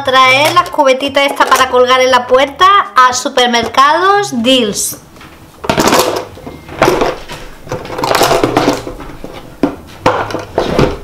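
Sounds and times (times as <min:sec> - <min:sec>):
plastic bin clunking and scraping: 0:05.6 - 0:11.0.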